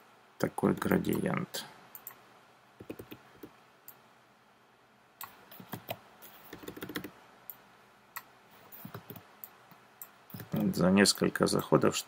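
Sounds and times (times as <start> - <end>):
keyboard and mouse clicking: 1.9 - 2.2, 2.8 - 4.0, 5.2 - 7.6, 8.2 - 10.8.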